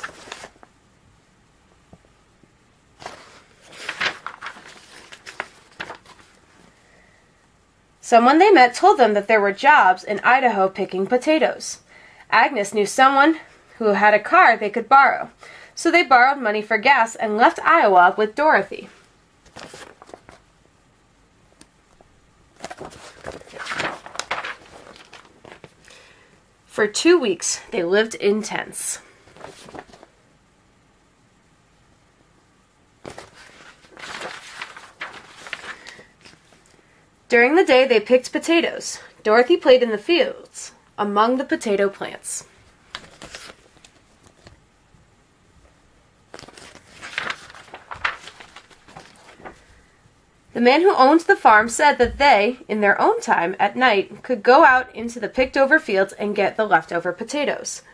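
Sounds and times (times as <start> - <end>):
book pages rustling: 0.0 - 0.7, 3.0 - 6.8, 19.4 - 20.4, 21.6 - 25.9, 29.2 - 30.1, 33.0 - 36.8, 42.6 - 44.6, 46.3 - 49.8.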